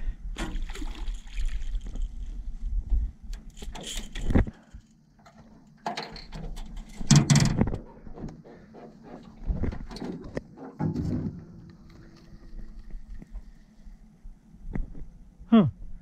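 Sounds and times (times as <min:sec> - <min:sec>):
knocks and rattles on metal boat: 0:05.9 - 0:11.7.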